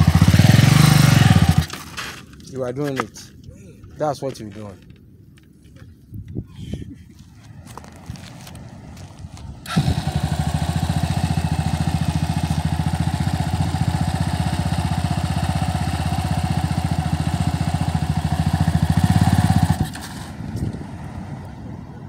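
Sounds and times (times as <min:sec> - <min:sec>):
dirt bike engine running: 0:00.0 - 0:01.9, 0:09.6 - 0:20.7.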